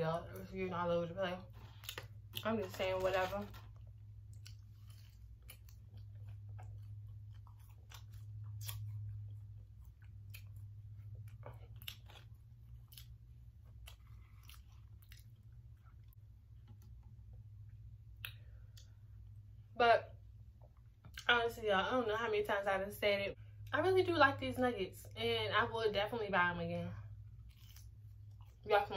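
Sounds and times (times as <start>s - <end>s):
person chewing crunchy food: 1.5s - 19.4s, 27.2s - 28.7s.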